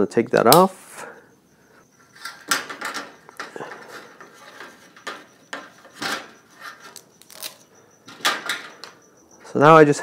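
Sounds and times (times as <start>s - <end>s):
strap rustling: 5.8s - 7.6s.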